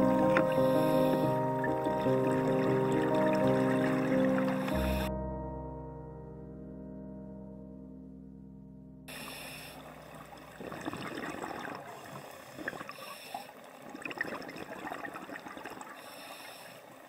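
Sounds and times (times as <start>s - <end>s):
underwater clicks and crackles: 0.0s - 0.7s, 9.8s - 13.1s
underwater rushing water hiss: 0.0s - 5.1s, 9.1s - 10.0s, 10.6s - 17.0s.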